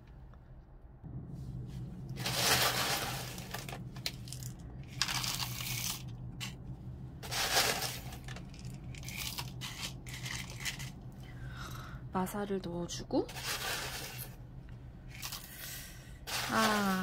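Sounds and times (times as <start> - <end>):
grit pouring into plastic pots: 2.2 - 6.0, 7.2 - 11.0, 13.3 - 14.4, 15.1 - 17.0.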